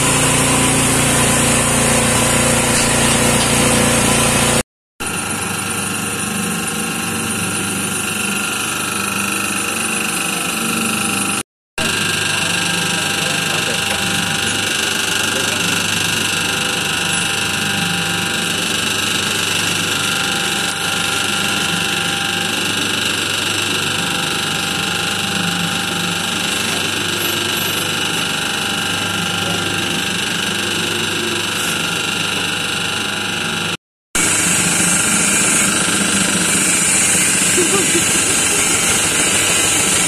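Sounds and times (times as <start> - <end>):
mixing shaft churning wet dough: 0.0 - 4.6, 34.2 - 40.0
dough mixer motor humming: 0.0 - 40.0.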